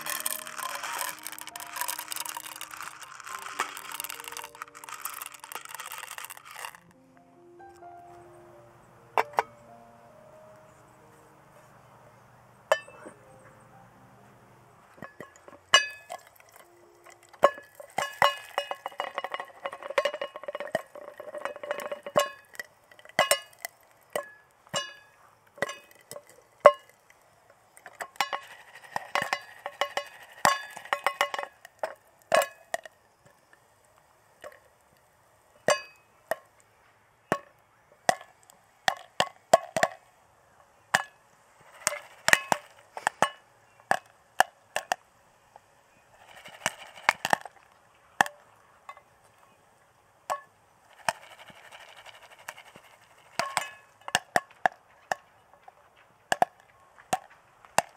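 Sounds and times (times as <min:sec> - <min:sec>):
pot rattling while shaken: 0:00.0 - 0:06.9, 0:15.0 - 0:27.1, 0:27.8 - 0:32.9, 0:41.6 - 0:44.1, 0:46.2 - 0:48.3, 0:50.9 - 0:54.4
popcorn popping in a pot: 0:00.0 - 0:07.0, 0:15.0 - 0:36.6, 0:37.2 - 0:40.1, 0:40.7 - 0:49.1, 0:50.2 - 0:55.4, 0:56.3 - 0:57.9.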